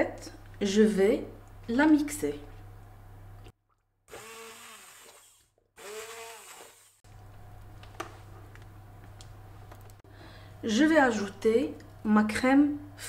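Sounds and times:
immersion blender whirring: 4.1s - 7.0s.

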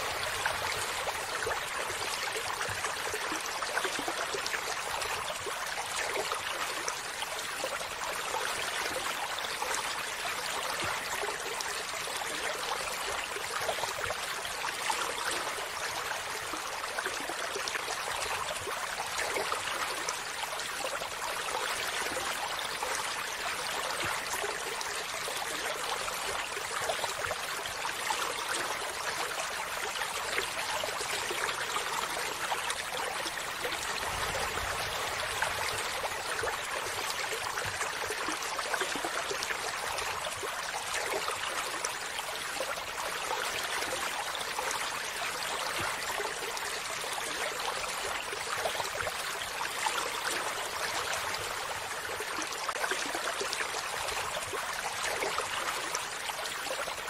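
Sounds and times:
stream flowing over stones: 0.0s - 57.0s.

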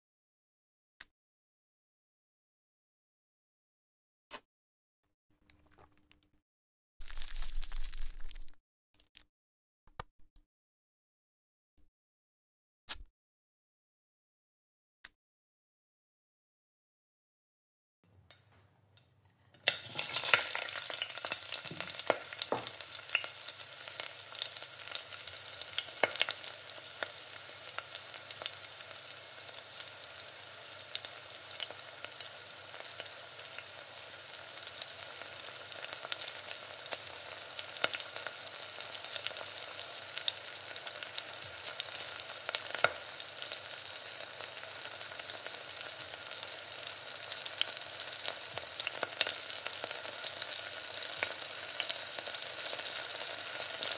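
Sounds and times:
food sizzling in hot oil: 7.0s - 8.6s, 19.6s - 53.9s
oil popping and crackling: 7.0s - 9.3s
utensil scraping in pan: 19.3s - 20.8s.

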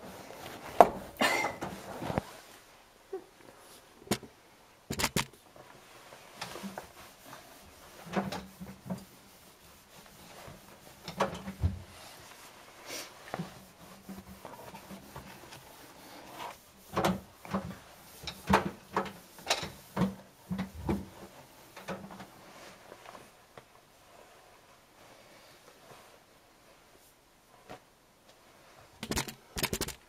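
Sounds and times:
objects being handled: 4.9s - 5.7s, 29.0s - 30.0s.

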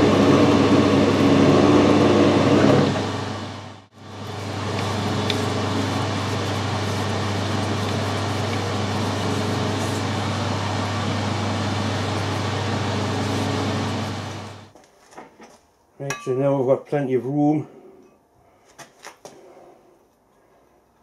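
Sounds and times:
metal lathe humming: 0.0s - 14.7s.

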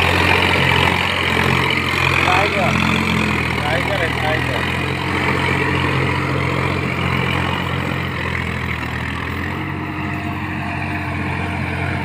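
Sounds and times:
diesel tractor engine under load: 0.0s - 12.0s.

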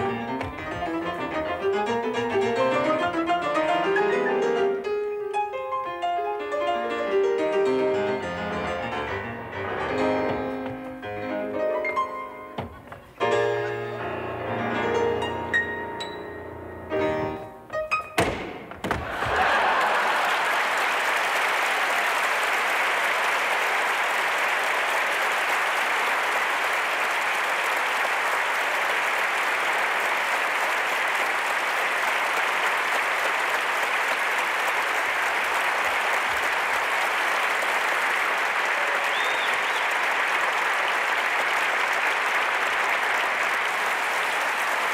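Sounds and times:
audience applauding: 0.0s - 4.5s, 8.1s - 11.2s, 18.9s - 44.9s.

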